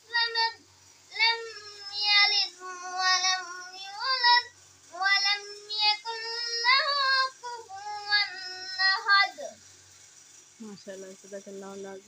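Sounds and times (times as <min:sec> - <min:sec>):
boy chanting melodically: 0:00.0 - 0:09.6.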